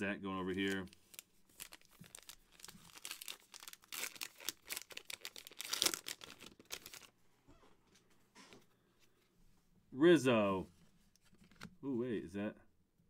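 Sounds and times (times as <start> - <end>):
wrapper tearing and crinkling: 0.5 - 7.1.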